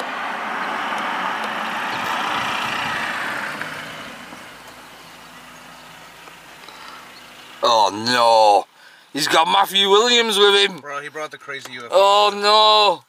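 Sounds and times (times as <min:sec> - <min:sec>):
car driving past: 0:00.0 - 0:07.6.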